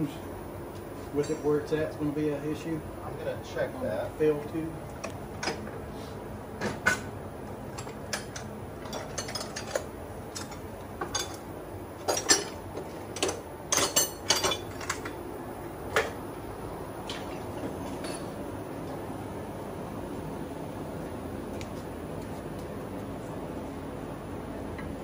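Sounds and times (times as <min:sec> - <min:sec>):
metallic clinks and knocks: 0:07.7 - 0:11.4, 0:13.2 - 0:15.2.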